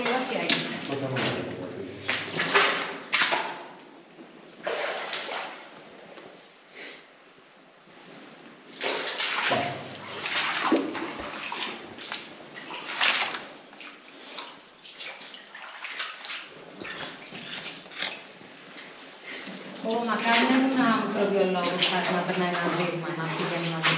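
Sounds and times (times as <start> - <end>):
footsteps splashing through water: 0.0 - 3.7, 4.6 - 5.7, 8.7 - 18.4, 19.9 - 23.9.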